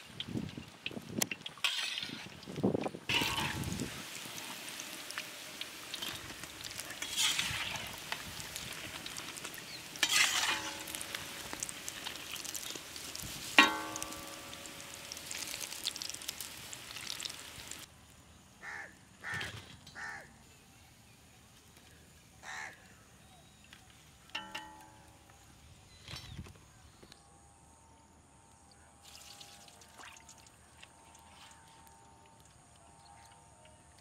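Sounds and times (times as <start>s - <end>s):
hot oil sizzling: 0.0s - 17.9s, 29.0s - 30.3s
skimmer clinking on metal pan: 3.1s - 3.8s, 13.6s - 14.6s, 24.4s - 25.0s.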